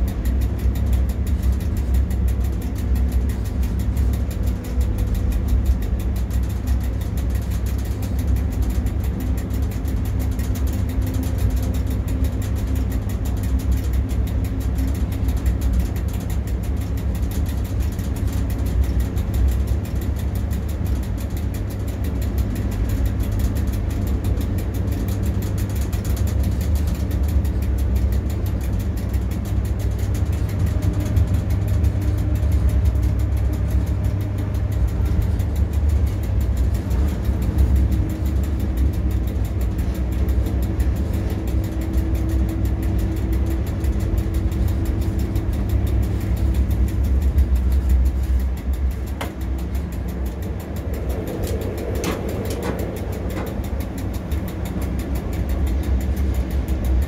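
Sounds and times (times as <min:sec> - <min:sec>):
faint steady hum: 0:00.0 - 0:57.0
locomotive cab rumble: 0:28.5 - 0:57.0.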